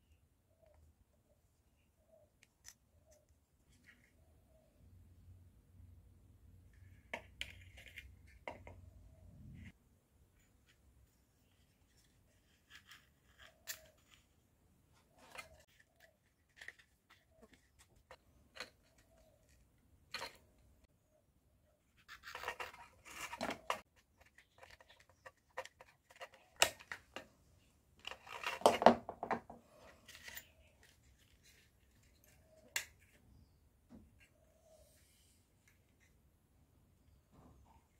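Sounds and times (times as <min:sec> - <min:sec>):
scraping and rustling: 0:21.9 - 0:26.8.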